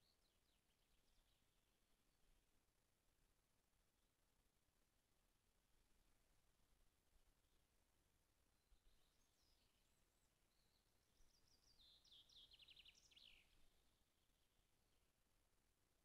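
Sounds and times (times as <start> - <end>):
songbird singing: 0.0 - 1.8, 8.4 - 15.1.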